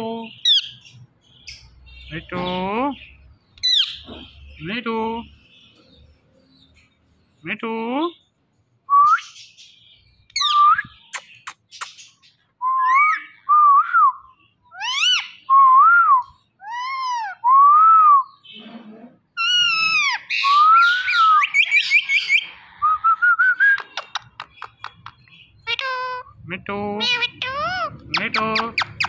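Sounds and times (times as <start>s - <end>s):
parakeet chirps and squawks: 0.3s - 2.5s, 3.1s - 4.6s, 9.3s - 13.4s, 14.4s - 15.5s, 16.5s - 17.4s, 18.3s - 22.8s, 23.8s - 26.4s, 27.0s - 29.0s.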